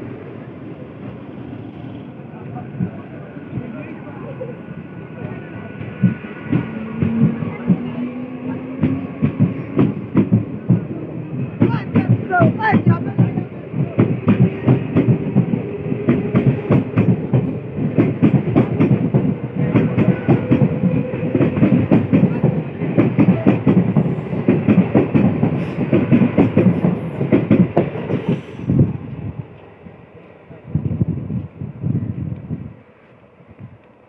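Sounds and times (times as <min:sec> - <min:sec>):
train wheels clattering: 0:05.8 - 0:30.3.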